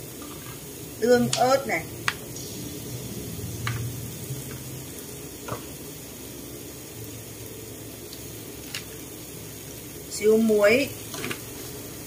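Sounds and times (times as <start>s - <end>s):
paste sizzling in a wok: 0.0s - 12.0s
low hum: 1.7s - 5.4s.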